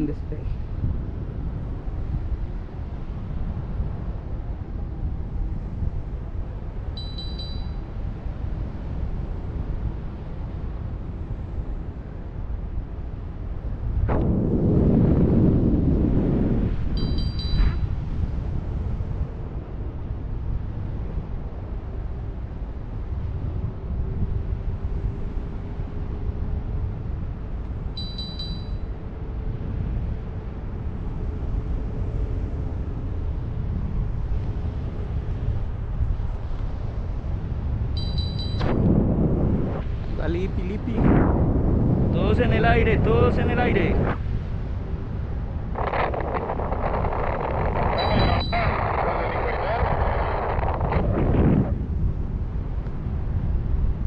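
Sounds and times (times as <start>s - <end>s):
wind buffeting microphone: 0.0s - 54.0s
high electronic beeps: 17.0s - 17.9s, 28.0s - 28.8s, 38.0s - 38.7s, 47.9s - 48.9s.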